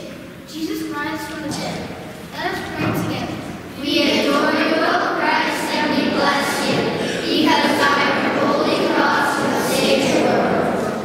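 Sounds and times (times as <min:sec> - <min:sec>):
children singing: 0:03.8 - 0:11.0.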